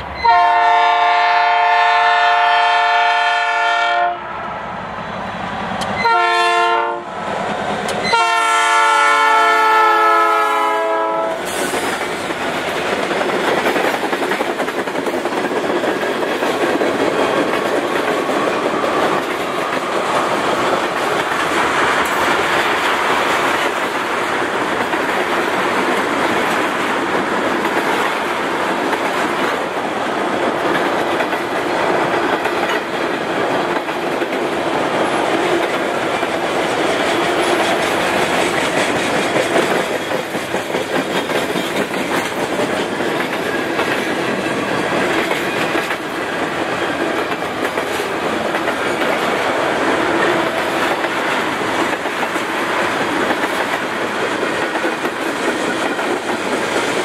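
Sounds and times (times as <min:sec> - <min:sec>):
locomotive air horn chord: 0:00.2 - 0:04.2, 0:06.0 - 0:07.1, 0:08.0 - 0:11.5.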